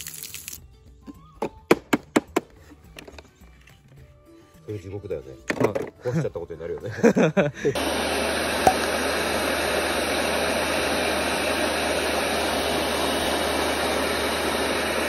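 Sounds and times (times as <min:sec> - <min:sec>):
pressure washer running: 0:07.7 - 0:15.0.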